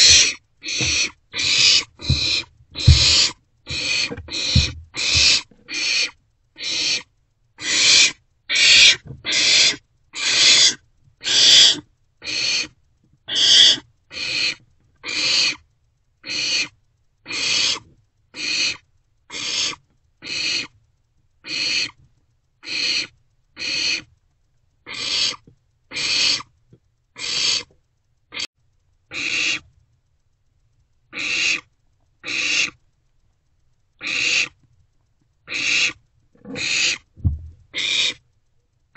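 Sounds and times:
owlets hissing begging calls: 0:00.0 - 0:12.7, 0:13.3 - 0:15.6, 0:17.3 - 0:17.8, 0:24.9 - 0:26.5, 0:27.2 - 0:27.7, 0:29.1 - 0:29.6, 0:31.2 - 0:32.8, 0:34.0 - 0:34.6, 0:35.5 - 0:37.1, 0:37.7 - 0:38.2.

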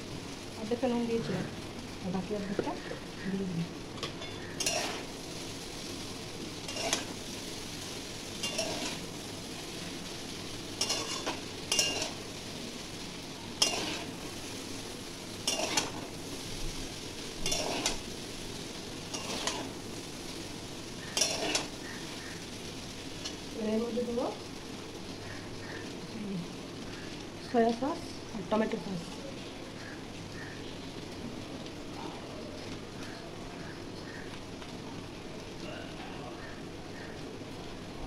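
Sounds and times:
steady sizzle: 0:00.0 - 0:38.0
spatula scraping wok: 0:04.0 - 0:06.0, 0:06.6 - 0:14.7, 0:15.4 - 0:20.1, 0:20.9 - 0:23.5.

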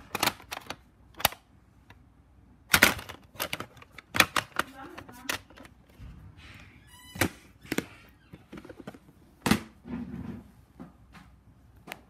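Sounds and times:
plastic case squeak: 0:06.6 - 0:09.0.

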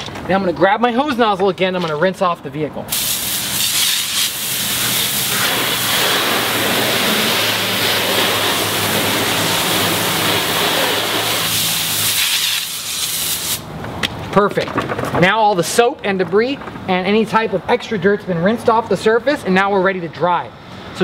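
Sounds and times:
hose spraying water on car: 0:02.9 - 0:13.7.

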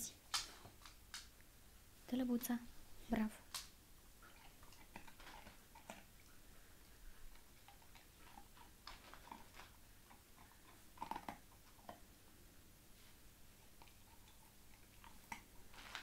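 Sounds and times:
puppy chewing food: 0:03.5 - 0:12.2, 0:13.5 - 0:16.0.

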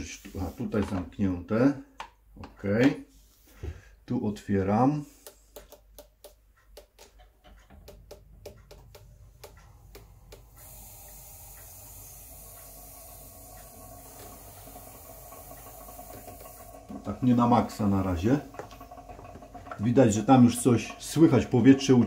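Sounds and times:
steady hiss of air: 0:09.9 - 0:17.8.

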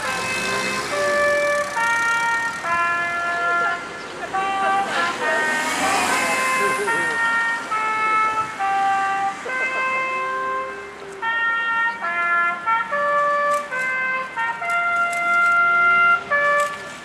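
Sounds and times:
trumpet melody: 0:00.0 - 0:17.0.

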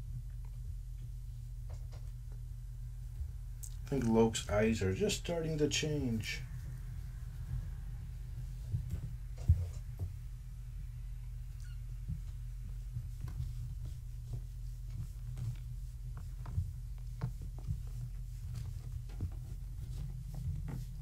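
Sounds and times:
steady low hum: 0:00.0 - 0:21.0
kittens' paws scrambling on fabric: 0:11.5 - 0:21.0.

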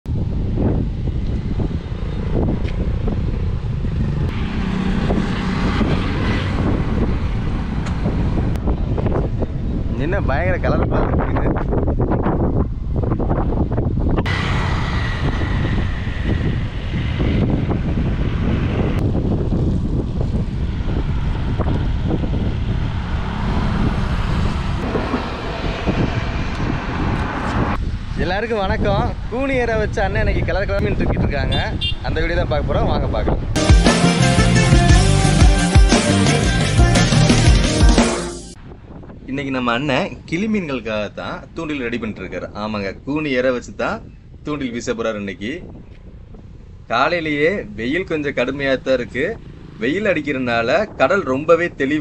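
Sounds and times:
wind buffeting microphone: 0:00.0 - 0:33.6, 0:38.6 - 0:52.0
motor scooter passing: 0:01.5 - 0:08.4, 0:14.2 - 0:18.9, 0:20.0 - 0:27.8.

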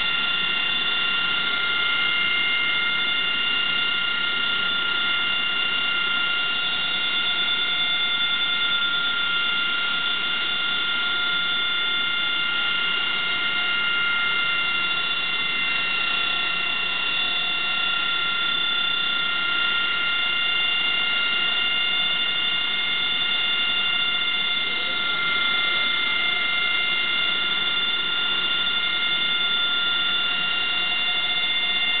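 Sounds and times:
jet engine whine: 0:00.0 - 0:32.0.

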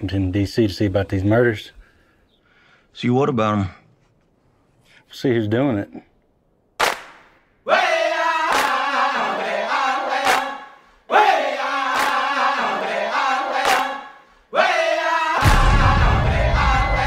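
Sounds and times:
voices chanting: 0:07.6 - 0:17.0
sharp percussive hits: 0:15.4 - 0:17.0.

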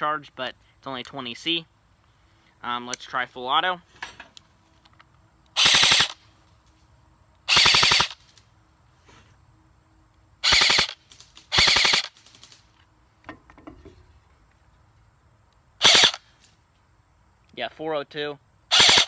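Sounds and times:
airsoft gun full-auto bursts: 0:05.6 - 0:06.2, 0:07.5 - 0:08.2, 0:10.4 - 0:12.5, 0:15.8 - 0:16.2, 0:18.7 - 0:19.0.

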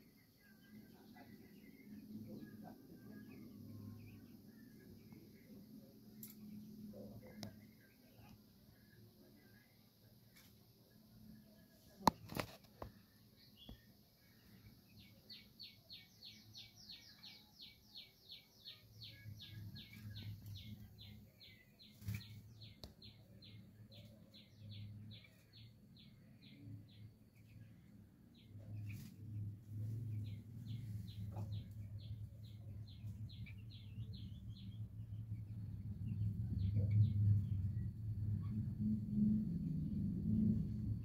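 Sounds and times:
low rumble: 0:27.8 - 0:41.0.

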